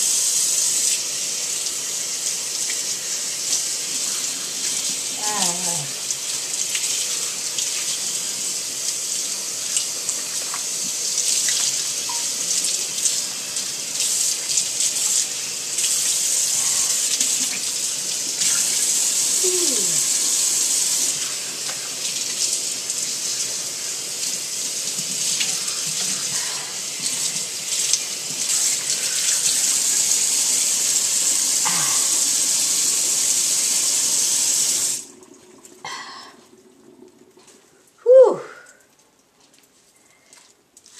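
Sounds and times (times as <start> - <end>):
faucet water splashing on hair: 0.7 - 40.9.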